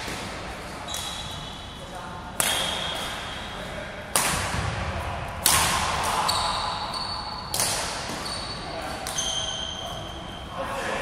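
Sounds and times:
rackets striking shuttlecock: 0:02.3 - 0:09.6.

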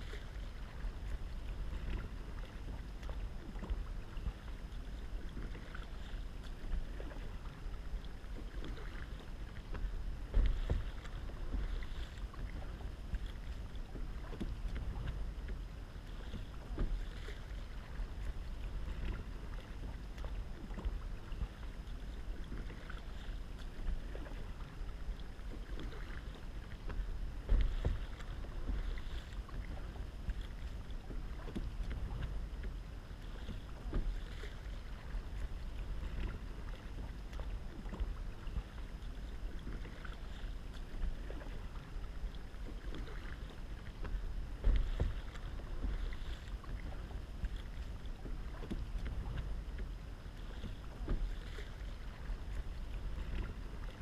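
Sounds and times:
paddle strokes in water: 0:00.0 - 0:54.0
wind rumbling on microphone: 0:00.0 - 0:54.0.

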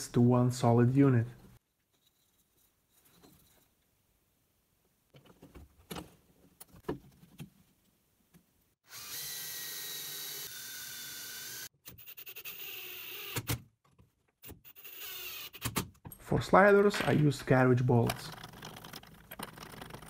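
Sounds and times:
cordless drill driving screws: 0:08.9 - 0:13.5, 0:14.7 - 0:15.6.

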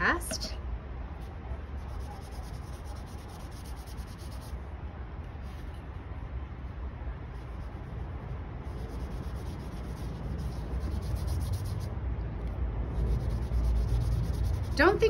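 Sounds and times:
paintbrush scrubbing on paper: 0:01.8 - 0:04.6, 0:08.6 - 0:11.9, 0:12.9 - 0:15.0.

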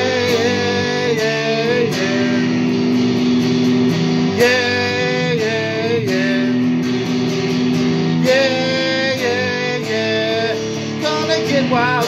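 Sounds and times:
person singing long notes: 0:00.0 - 0:02.9, 0:04.4 - 0:06.8, 0:08.2 - 0:12.0
electric guitar chords: 0:00.0 - 0:12.0.

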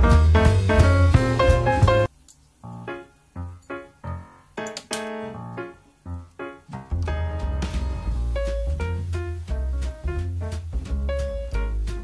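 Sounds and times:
instrumental music with bass line: 0:00.0 - 0:02.1, 0:06.7 - 0:12.0.

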